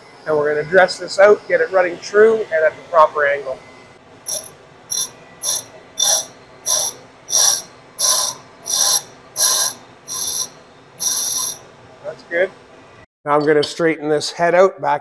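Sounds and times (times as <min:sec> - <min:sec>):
grinder running: 0:04.3 - 0:11.6
hissing scrapes on grinding wheel: 0:04.3 - 0:11.6.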